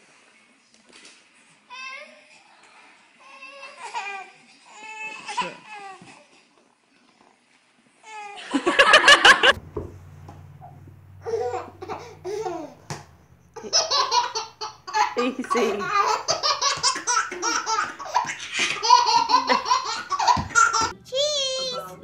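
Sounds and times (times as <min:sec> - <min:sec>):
babies laughing: 0:10.6 - 0:21.0.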